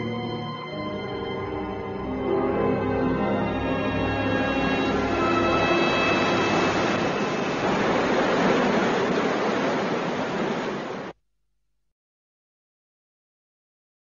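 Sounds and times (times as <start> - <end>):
music chord: 0.0 - 8.4
rough sea waves and spray: 4.6 - 11.2.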